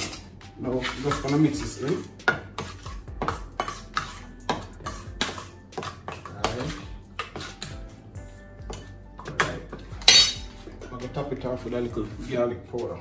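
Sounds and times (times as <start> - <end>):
spoon scraping a metal bowl: 0.0 - 8.0, 8.7 - 10.8.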